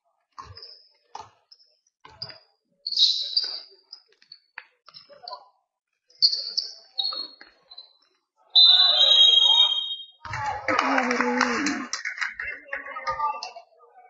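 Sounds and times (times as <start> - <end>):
shoes squeaking on a hall floor: 0.4 - 10.2.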